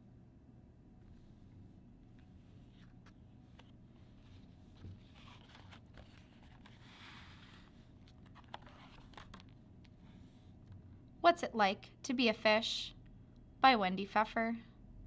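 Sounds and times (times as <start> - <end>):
book pages rustling: 1.0 - 10.8.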